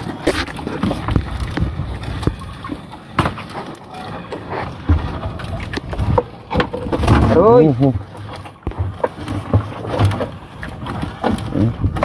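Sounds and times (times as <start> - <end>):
net knocking in a boat: 4.8 - 12.0.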